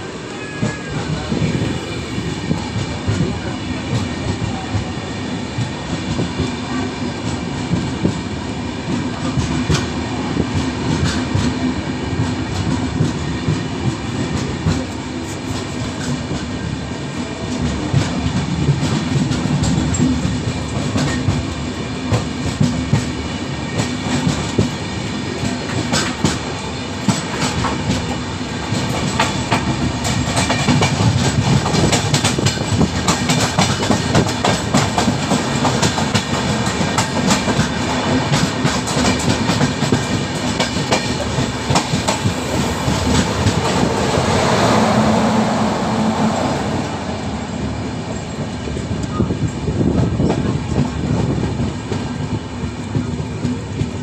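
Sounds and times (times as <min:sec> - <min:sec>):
low train rumble: 0:00.0 - 0:54.0
train wheels clattering over rail joints: 0:08.9 - 0:44.4.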